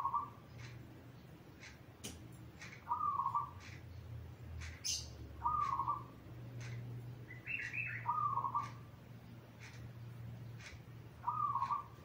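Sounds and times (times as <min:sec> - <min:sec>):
dove cooing: 0:05.4 - 0:06.1, 0:11.2 - 0:12.0.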